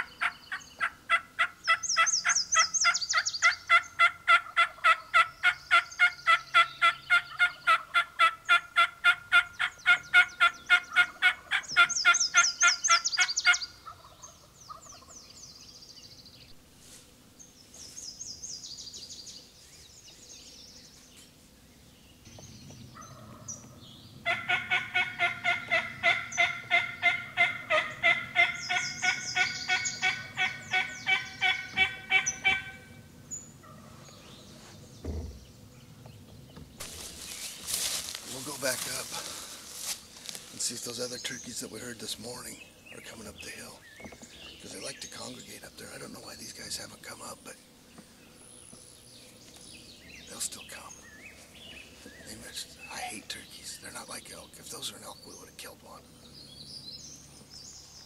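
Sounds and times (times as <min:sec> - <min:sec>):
turkey call yelps: 0:00.0 - 0:15.1, 0:24.2 - 0:33.0.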